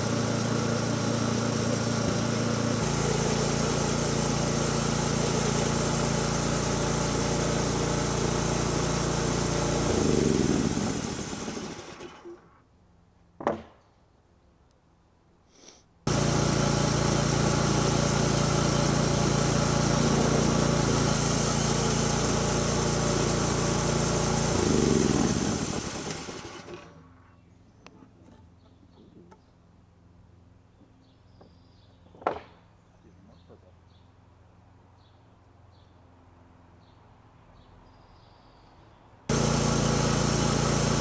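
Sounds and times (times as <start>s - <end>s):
gas engine running and winding down: 0.0s - 12.5s, 16.1s - 27.0s, 39.3s - 41.0s
knock: 13.4s - 13.8s.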